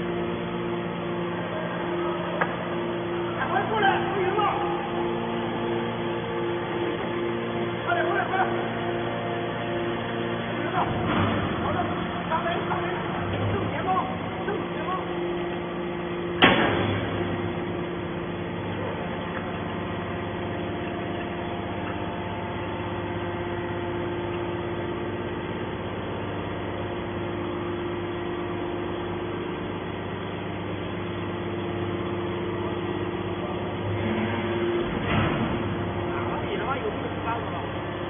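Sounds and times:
hydraulic power unit humming: 0.0s - 38.0s
sharp bang: 16.4s - 17.2s.

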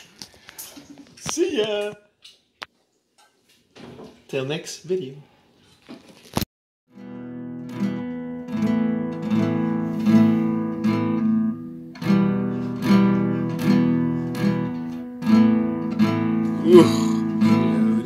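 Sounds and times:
acoustic guitar strumming: 6.9s - 18.0s.

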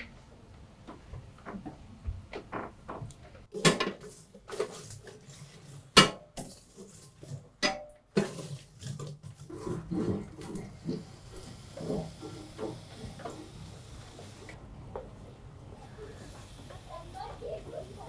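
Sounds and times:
charcoal clanking under metal poker: 3.5s - 11.1s.

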